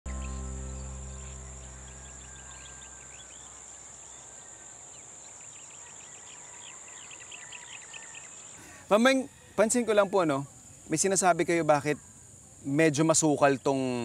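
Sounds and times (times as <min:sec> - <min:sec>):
bird chirps: 0:00.1 - 0:09.4
insects droning: 0:00.1 - 0:14.0.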